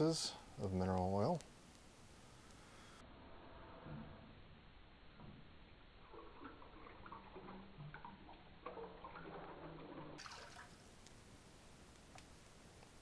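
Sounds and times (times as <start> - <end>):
liquid trickling and splashing: 6.0 - 10.9.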